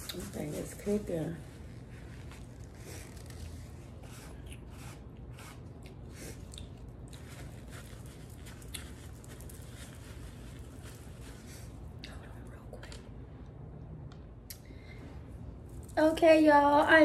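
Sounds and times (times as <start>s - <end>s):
paper napkin crinkling: 0.0s - 11.9s
low steady hum: 0.0s - 17.0s.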